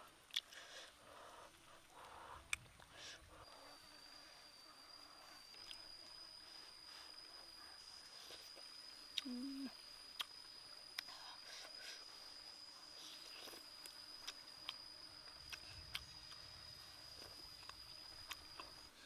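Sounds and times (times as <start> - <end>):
insect high-pitched drone: 0.0 - 19.0
chewing clicks and smacks: 0.3 - 0.6, 10.1 - 10.4, 15.4 - 16.4.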